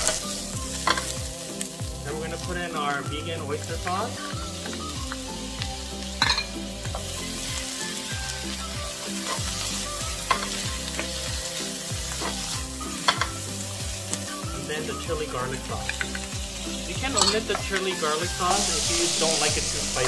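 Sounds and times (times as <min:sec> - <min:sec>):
beans sizzling in a frying pan: 0:00.0 - 0:20.0.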